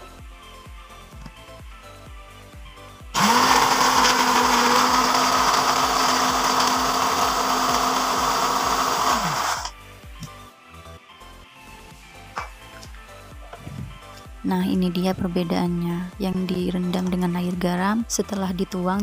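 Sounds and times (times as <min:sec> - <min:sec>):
blender motor whining: 0:03.2 - 0:09.7.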